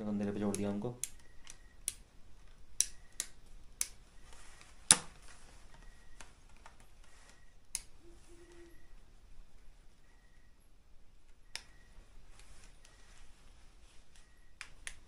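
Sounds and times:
sharp clicks and taps: 0:00.5 - 0:04.0.

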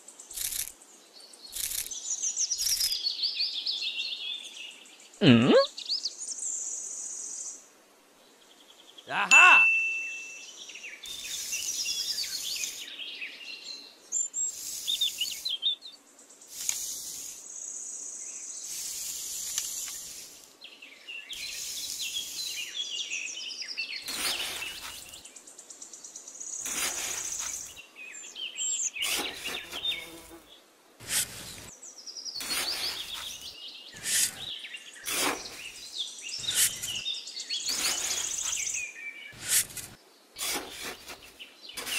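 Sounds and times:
birds chirping: 0:08.3 - 0:41.9
insects buzzing: 0:10.4 - 0:41.9
trowel scraping damp sand: 0:11.1 - 0:12.9, 0:14.4 - 0:15.5, 0:16.5 - 0:17.4, 0:18.6 - 0:20.5, 0:21.4 - 0:22.7, 0:24.1 - 0:25.2, 0:26.6 - 0:27.8, 0:29.0 - 0:30.4, 0:31.0 - 0:31.7, 0:32.4 - 0:37.0, 0:37.6 - 0:38.8, 0:39.4 - 0:41.9.

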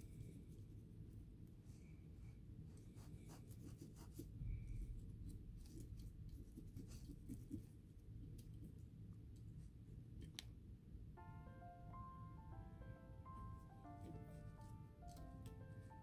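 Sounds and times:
low steady hum: 0:00.0 - 0:16.0
cotton swab scratching and rubbing: 0:02.7 - 0:08.9.

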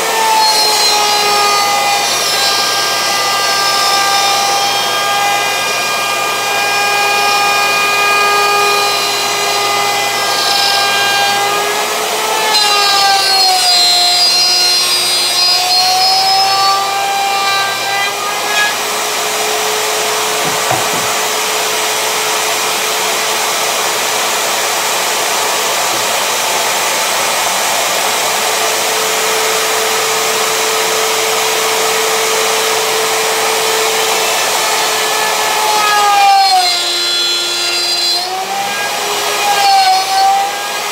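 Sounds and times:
wood router high whine: 0:00.0 - 0:40.9
router bit cutting board hiss: 0:00.2 - 0:23.0.

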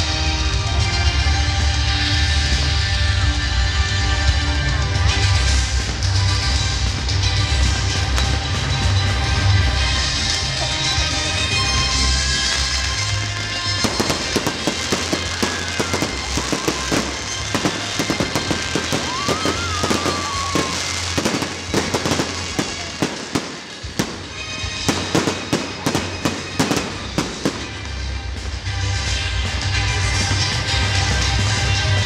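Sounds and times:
fireworks bangs and crackles: 0:00.0 - 0:32.0
music with steady bass: 0:00.0 - 0:32.0
firework whistle: 0:11.7 - 0:28.2.

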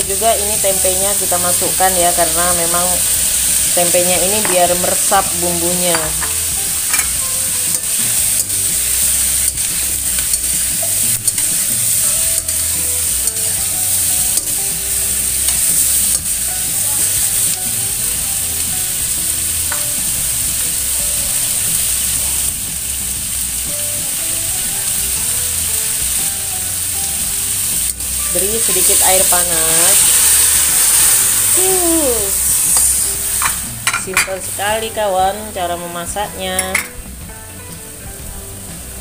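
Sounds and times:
vegetables frying in a wok: 0:00.0 - 0:39.0
metal spatula scraping wok: 0:01.2 - 0:14.6, 0:28.2 - 0:34.7.

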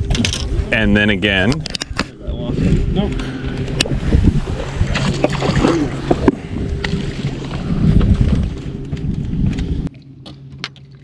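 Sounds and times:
wind buffeting microphone: 0:00.0 - 0:09.9
steady low hum: 0:00.0 - 0:11.0
microphone handling noise: 0:07.6 - 0:09.9.

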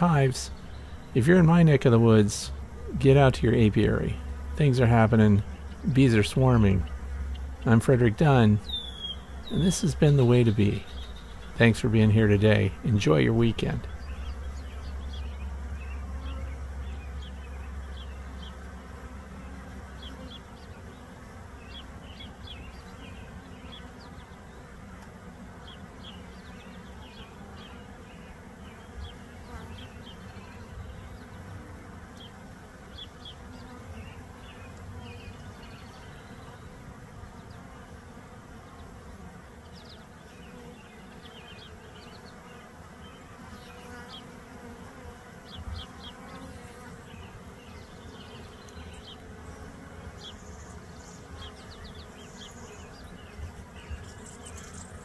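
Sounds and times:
bees buzzing: 0:00.0 - 0:55.0
short high bee chirps: 0:08.5 - 0:11.7.

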